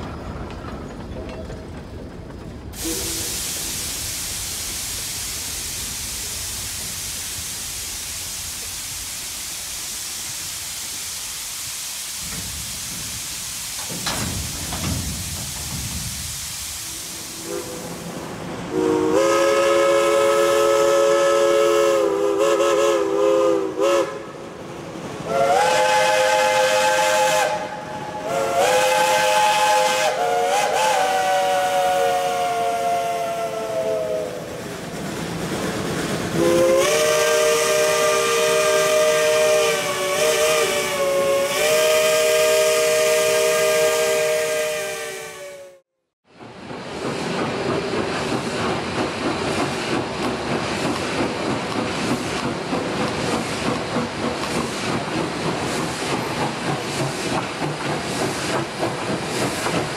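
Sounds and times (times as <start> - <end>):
steam hissing: 2.7 - 45.8, 46.4 - 59.9
steam locomotive chime whistle: 2.8 - 3.7, 16.8 - 18.0, 18.7 - 24.4, 25.3 - 34.5, 36.4 - 45.8.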